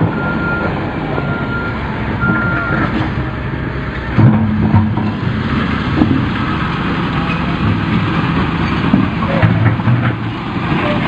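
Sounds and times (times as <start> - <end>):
bulldozer diesel engine running: 0.0 - 11.0.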